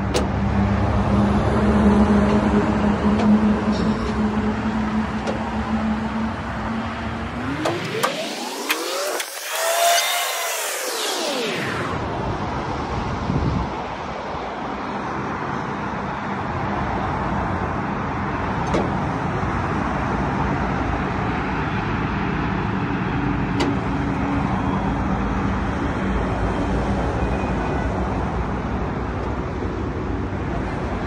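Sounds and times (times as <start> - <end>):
sharp clicks: 7.5 - 11.2.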